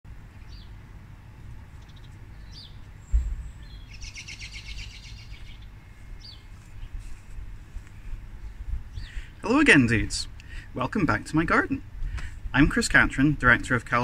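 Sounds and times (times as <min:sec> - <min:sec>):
low steady rumble: 0:00.1 - 0:14.0
small birds chirping: 0:00.2 - 0:10.7
bird twittering song: 0:00.3 - 0:00.8, 0:01.4 - 0:07.1, 0:07.9 - 0:09.7
dull thump: 0:03.1 - 0:03.6.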